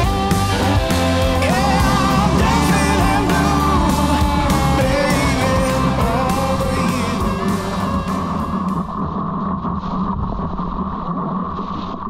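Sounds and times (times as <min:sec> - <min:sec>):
rock music with singer: 0:00.0 - 0:09.0.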